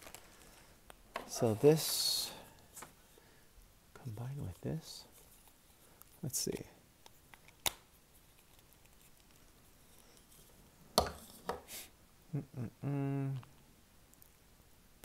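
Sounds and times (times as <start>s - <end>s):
man humming: 12.3s - 13.6s.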